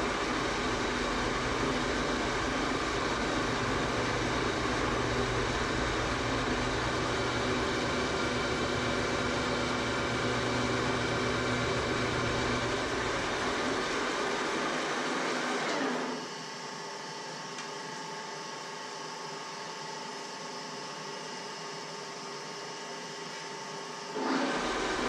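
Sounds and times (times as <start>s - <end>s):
metal lathe gear whine: 0.0s - 16.6s.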